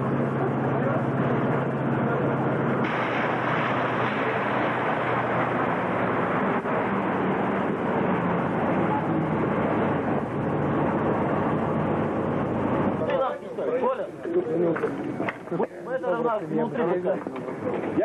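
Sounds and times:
rush of travel noise: 0.0s - 13.1s
armoured vehicle engine rumble: 0.0s - 15.7s.

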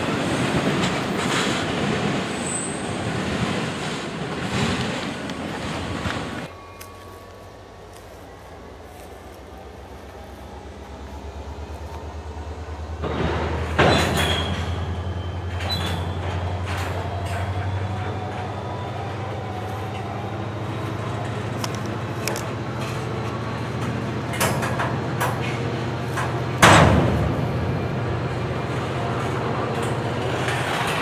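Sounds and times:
freight train rumbling: 0.0s - 31.0s
high wheel squeal: 2.2s - 3.2s, 12.5s - 22.0s.

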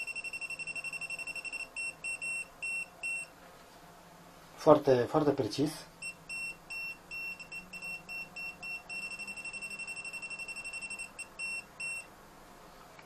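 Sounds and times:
voltage detector beeping: 0.0s - 3.3s, 6.0s - 12.1s.

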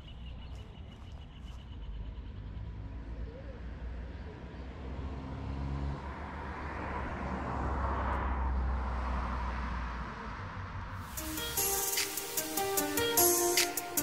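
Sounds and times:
car passing on paved road: 1.9s - 13.4s.

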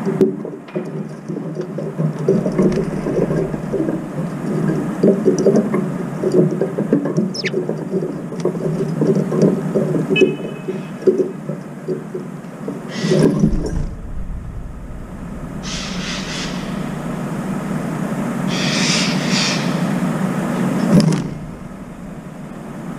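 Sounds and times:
deep vehicle rumble: 2.0s - 11.0s, 12.6s - 22.9s
short hissy noise: 12.9s - 17.7s.

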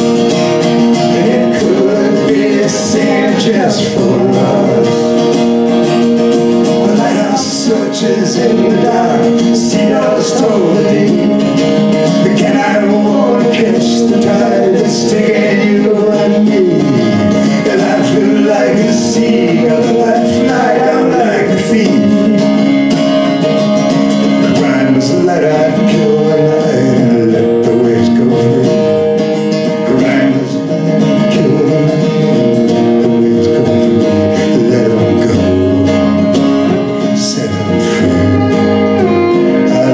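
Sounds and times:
acoustic guitar strumming: 0.0s - 39.9s
violin sliding melody: 37.4s - 39.9s.

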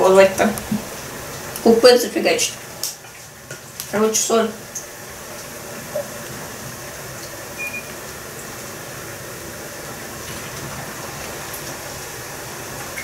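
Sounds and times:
kitchen background hiss: 0.0s - 13.0s
short beep: 7.6s - 7.9s.

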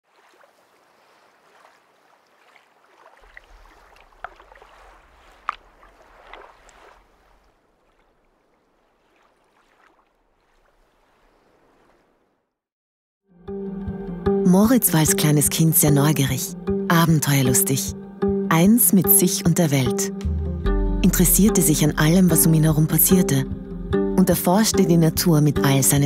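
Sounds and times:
small sharp splashes: 0.0s - 12.4s
sea water lapping: 0.0s - 12.6s.

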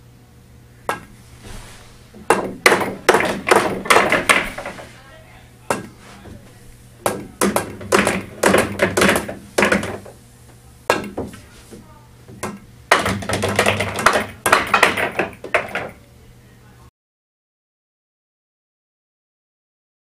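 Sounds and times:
cue striking ball: 0.8s - 5.0s, 5.7s - 10.2s, 10.9s - 16.0s
pool balls clacking: 0.8s - 16.0s.

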